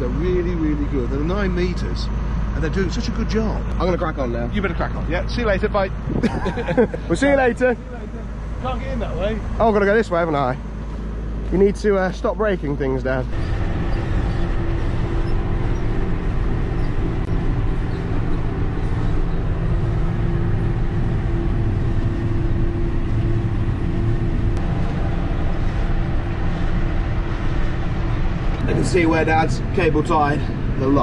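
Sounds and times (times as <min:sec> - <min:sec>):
tractor engine under load: 0:06.8 - 0:31.0.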